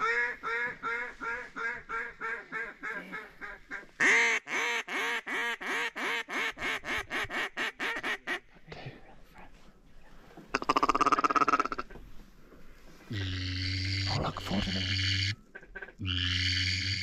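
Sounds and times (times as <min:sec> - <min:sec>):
duck call quacks: 0:00.0 - 0:08.4.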